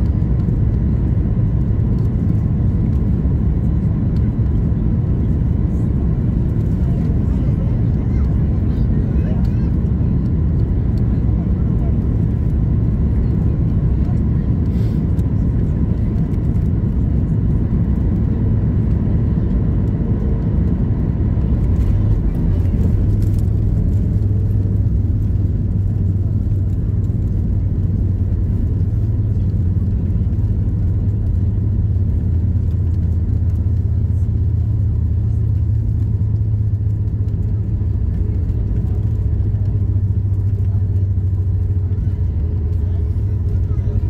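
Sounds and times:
deep low rumble of rollout: 0.0 - 44.0
engine and airflow rumble: 0.0 - 44.0.

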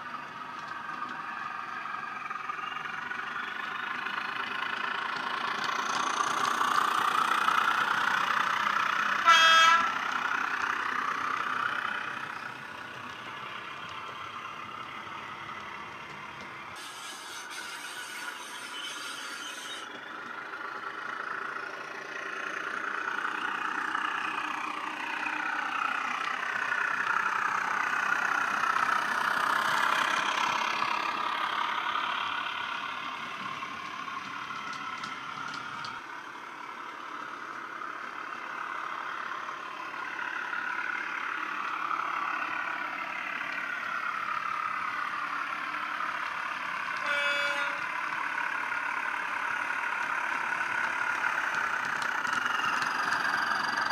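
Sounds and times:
model diesel engine sound: 0.0 - 53.9
short horn toot: 9.3 - 9.9, 47.0 - 47.9.

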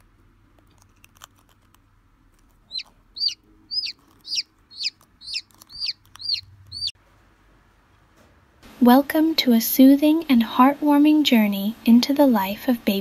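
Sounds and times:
chick peeping: 2.7 - 7.0.

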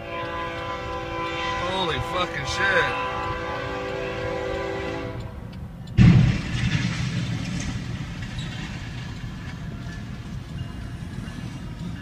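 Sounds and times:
train rumbling: 0.0 - 12.0
train crashing into truck: 6.0 - 10.4.

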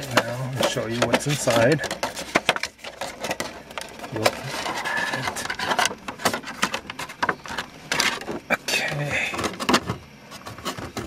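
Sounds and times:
cardboard box rustling and scraping: 0.0 - 11.0.

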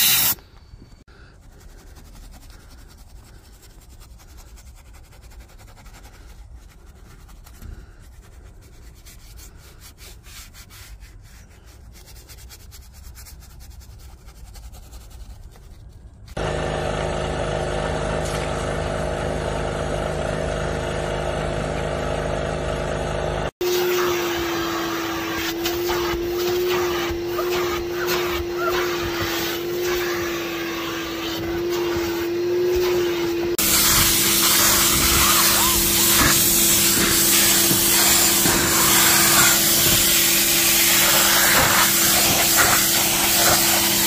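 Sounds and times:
brush scrubbing: 1.1 - 16.4, 23.6 - 44.0
loud machine drone: 16.4 - 23.5
vacuum motor whine: 16.4 - 44.0.

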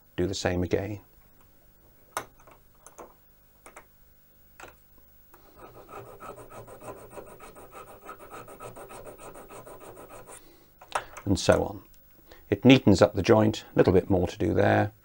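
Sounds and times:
file rasping on metal: 5.6 - 10.4.

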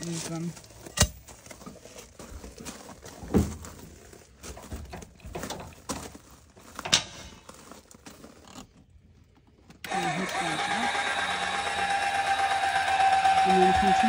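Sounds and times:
metal hardware clanking: 4.6 - 6.0, 6.7 - 7.6.

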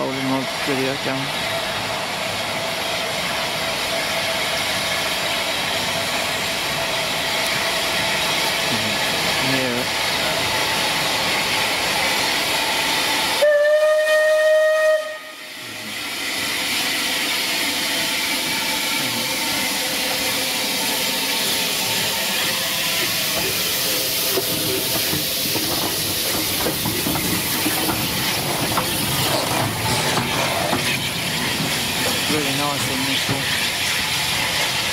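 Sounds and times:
steam hissing: 0.0 - 34.9
steam locomotive whistle: 13.4 - 15.6.

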